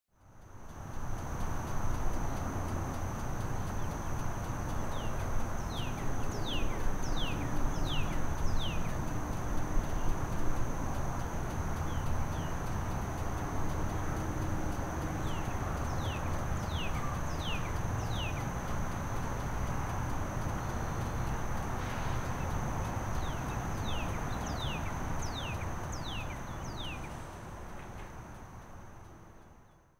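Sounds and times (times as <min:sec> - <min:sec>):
low rumble and hiss: 0:00.2 - 0:29.9
constant high thin tone: 0:00.3 - 0:27.6.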